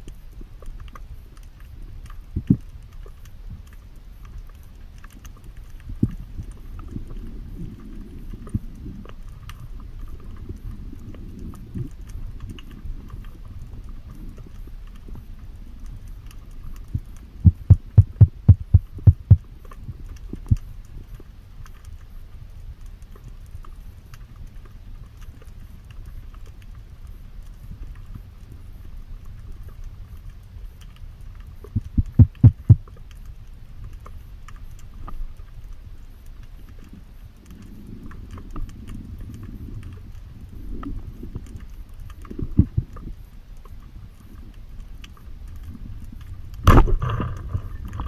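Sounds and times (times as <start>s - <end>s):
faint crackling: 0.0s - 48.0s
low underwater rumble: 0.0s - 48.0s
dull underwater knocks: 17.4s - 19.4s, 31.7s - 32.9s.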